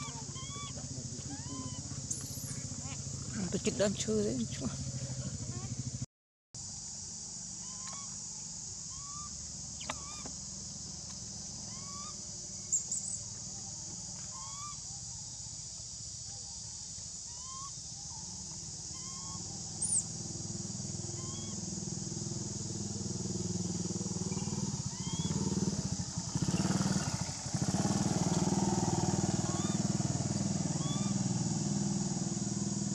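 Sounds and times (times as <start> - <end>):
animal call notes: 0.0 - 3.0, 17.3 - 20.1, 21.0 - 21.6, 24.2 - 25.8, 26.4 - 31.4
high insect drone: 0.0 - 6.0, 6.6 - 32.9
low engine rumble: 18.2 - 32.9.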